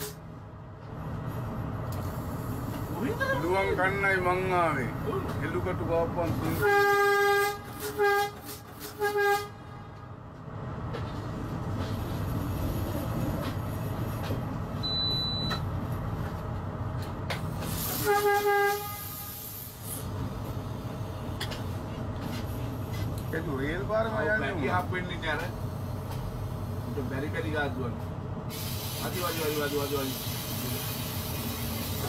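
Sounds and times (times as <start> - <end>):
train rumbling on rails: 0.0 - 32.0
train horn blasts: 6.6 - 10.1, 17.9 - 19.6.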